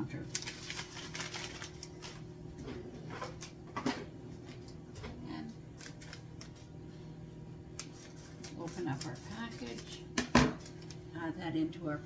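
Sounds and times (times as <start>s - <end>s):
packet crinkling: 0.2s - 2.3s, 5.7s - 6.6s.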